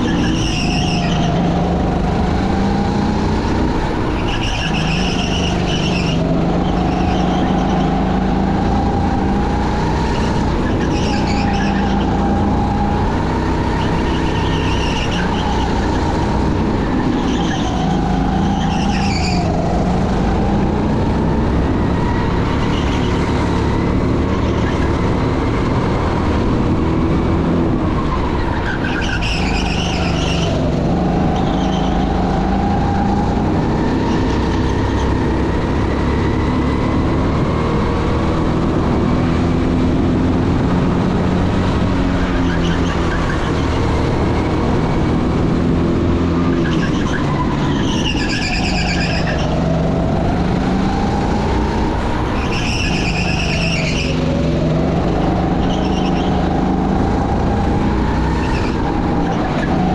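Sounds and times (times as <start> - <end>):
tyre squeal: 0.0 - 1.7, 4.1 - 8.2, 10.1 - 12.5, 13.6 - 20.5, 22.2 - 23.3, 24.3 - 25.0, 28.0 - 33.2, 42.2 - 43.7, 46.5 - 49.8, 52.3 - 54.4, 55.4 - 56.8, 58.3 - 59.9
car engine revving: 0.0 - 59.9.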